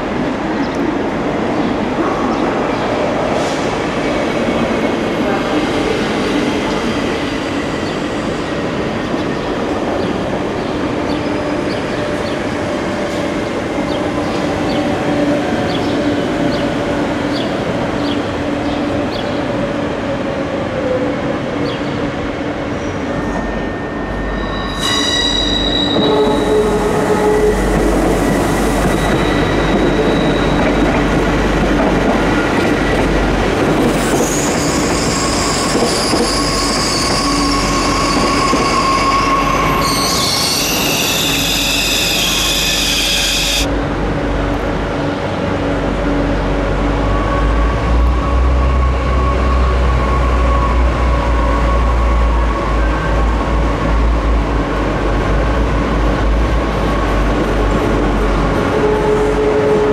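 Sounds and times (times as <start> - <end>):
train wheel squeal: 22.8 - 31.1, 34.0 - 43.7.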